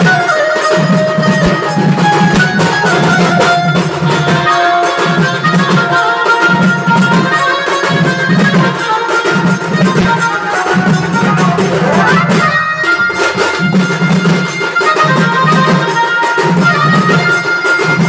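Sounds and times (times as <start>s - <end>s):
drummers beating a driving rhythm: 0.0s - 18.0s
high wavering melody: 0.0s - 18.0s.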